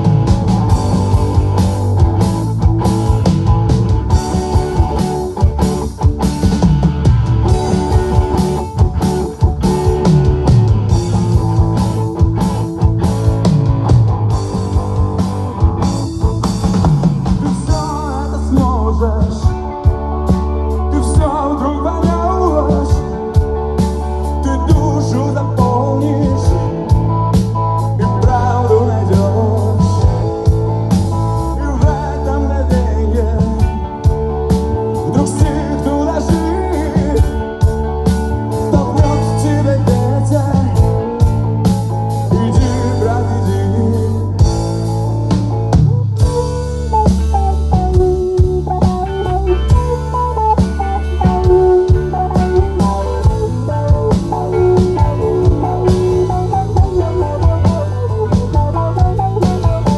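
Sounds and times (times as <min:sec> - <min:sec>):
bass guitar: 0:00.0 - 0:59.9
drum kit: 0:00.0 - 0:59.9
electric guitars: 0:00.0 - 0:59.9
rock band playing live: 0:00.0 - 0:59.9.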